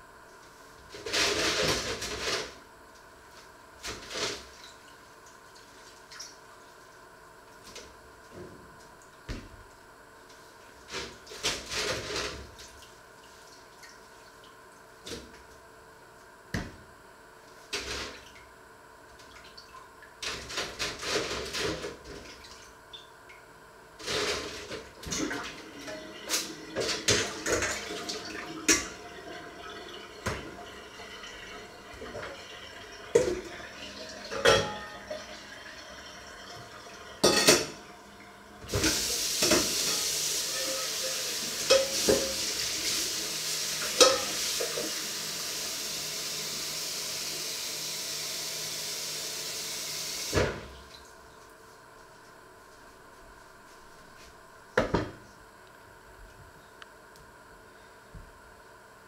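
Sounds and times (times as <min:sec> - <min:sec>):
dishes clinking: 0:34.3 - 0:35.0, 0:37.2 - 0:37.8, 0:41.6 - 0:42.4, 0:43.9 - 0:44.4.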